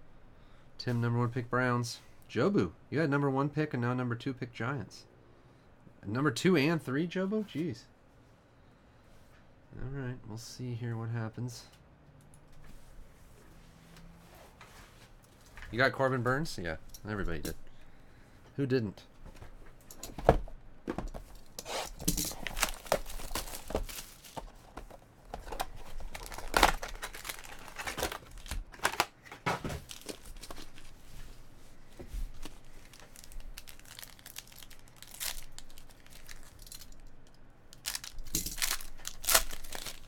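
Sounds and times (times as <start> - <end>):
foil wrappers crinkling: 21.3 - 31.1, 32.3 - 40.0
pack tearing open: 21.6 - 24.5, 25.5 - 29.2, 29.8 - 30.8, 32.8 - 37.0, 37.8 - 40.0.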